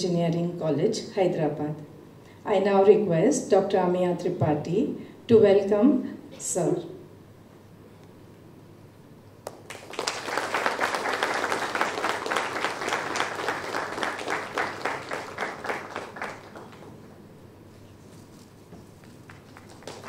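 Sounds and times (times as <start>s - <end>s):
audience applauding: 9.5s - 17.1s, 19.0s - 20.0s.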